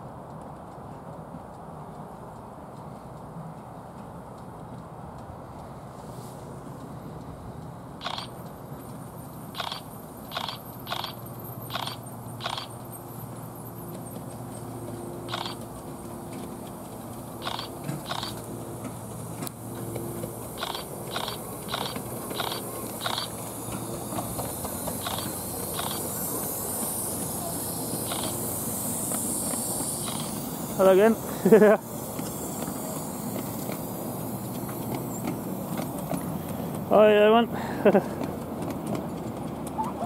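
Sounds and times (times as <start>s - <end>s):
miniature steam locomotive running: 0.0s - 40.0s
steam hissing: 8.0s - 12.7s, 14.7s - 38.9s.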